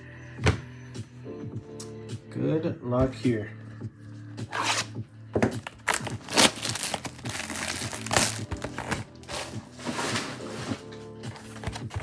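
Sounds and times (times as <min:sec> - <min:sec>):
background music: 0:00.0 - 0:12.0
wrap and cardboard crinkling and ripping: 0:05.6 - 0:12.0.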